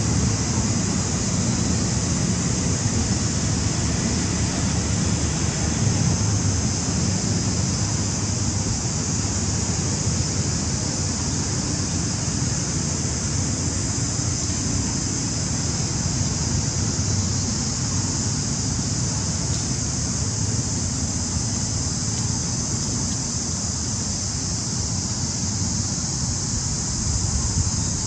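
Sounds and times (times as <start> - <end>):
constant high hiss: 0.0 - 28.0
wind rumbling on microphone: 26.5 - 28.0.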